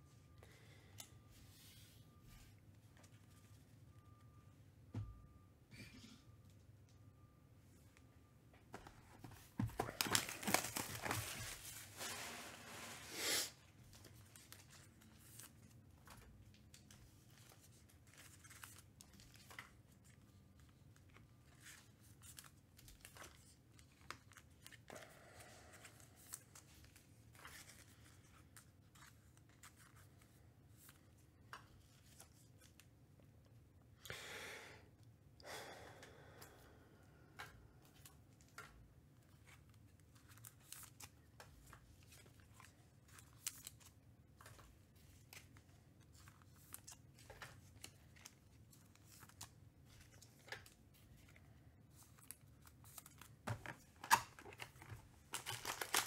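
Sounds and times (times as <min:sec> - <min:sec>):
cards rustling: 0:08.8 - 0:12.3, 0:37.8 - 0:56.0
wrapper tearing and crinkling: 0:55.3 - 0:56.0.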